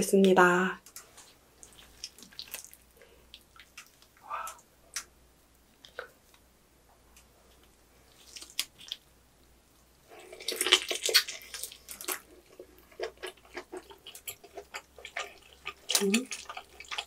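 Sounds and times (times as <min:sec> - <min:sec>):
wet chewing with mouth clicks: 0:00.9 - 0:05.1, 0:07.5 - 0:09.1, 0:10.1 - 0:17.0
crisp skin crackling when bitten: 0:01.6 - 0:02.9, 0:08.2 - 0:09.0, 0:10.4 - 0:12.3.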